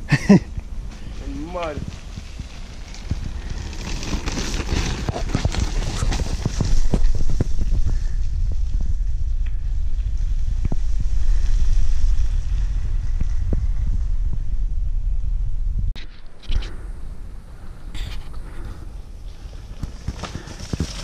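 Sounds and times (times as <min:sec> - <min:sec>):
wind rumble on microphone: 0:00.0 - 0:21.0
footsteps on dirt trail: 0:00.8 - 0:08.3, 0:18.0 - 0:21.0.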